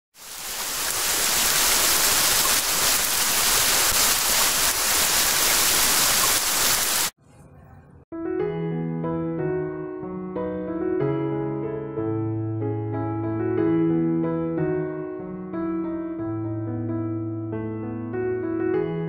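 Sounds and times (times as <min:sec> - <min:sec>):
piano music: 0:08.1 - 0:19.0.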